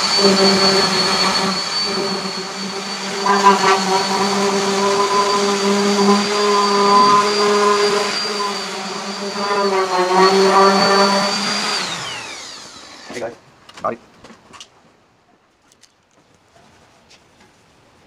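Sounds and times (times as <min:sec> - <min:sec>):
power sander whining on metal: 0:00.0 - 0:13.4.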